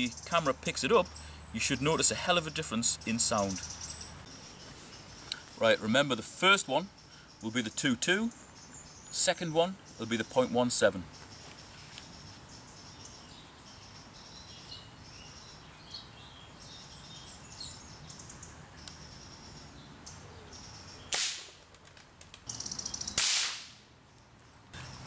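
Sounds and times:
suppressed rifle shots: 23.2 - 23.7.

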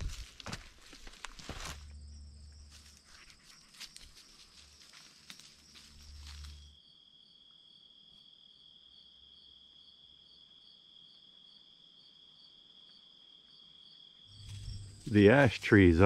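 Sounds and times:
footsteps on rocky trail: 0.0 - 2.0
crickets trilling: 0.0 - 16.0.

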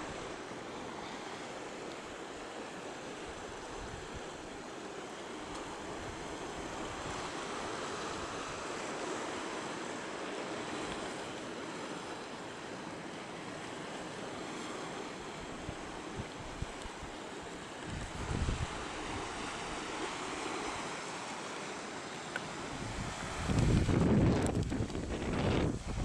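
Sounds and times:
sea surf: 0.0 - 26.0
wind rumbling on microphone: 3.3 - 4.6, 15.4 - 17.1, 17.8 - 20.6, 22.6 - 26.0.

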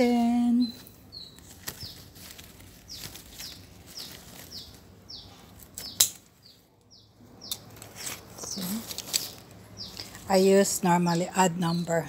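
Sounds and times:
leaf rustle: 0.0 - 6.3, 7.5 - 11.5
small bird chirping: 0.0 - 12.0
sharp clicks: 5.8 - 7.7.

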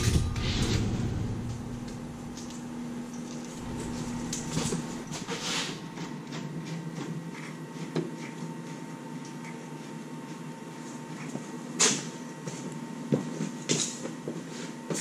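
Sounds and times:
sheet metal scraping: 0.0 - 6.2
steady hum: 0.0 - 7.1.

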